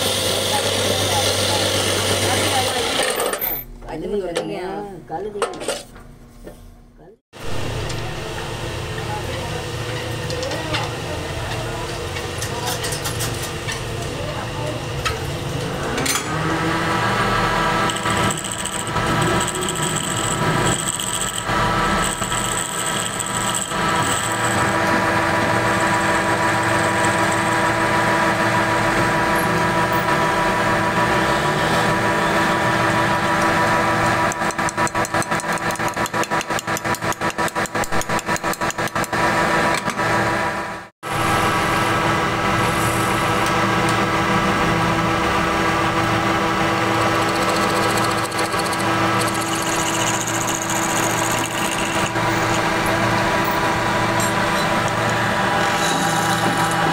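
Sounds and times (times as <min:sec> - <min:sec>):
lathe whining: 0:00.0 - 0:03.4, 0:14.9 - 0:37.0, 0:38.6 - 0:56.9
cutting tool scraping wood: 0:47.2 - 0:52.6, 0:54.2 - 0:56.9.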